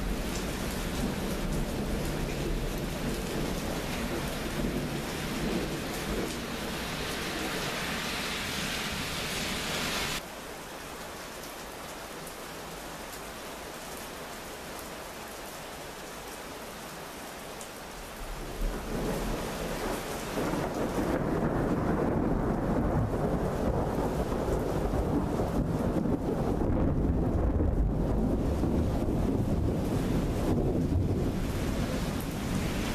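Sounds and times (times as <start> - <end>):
deep thunder rumbling: 0.0 - 7.7, 20.4 - 32.9
heavy rain hissing: 0.0 - 12.0, 29.0 - 32.9.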